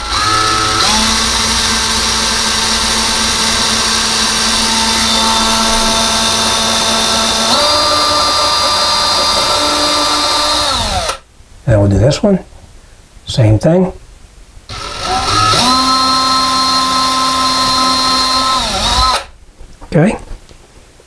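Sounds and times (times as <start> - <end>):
cordless drill whining: 0.0 - 11.2, 14.7 - 19.4.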